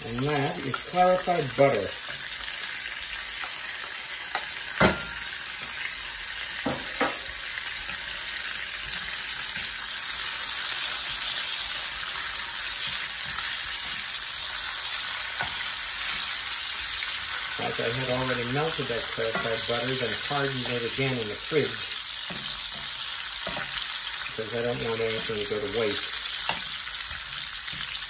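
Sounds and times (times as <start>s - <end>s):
bacon sizzling in a skillet: 0.0s - 28.0s
knocks on skillet: 4.8s - 5.2s, 6.6s - 7.3s.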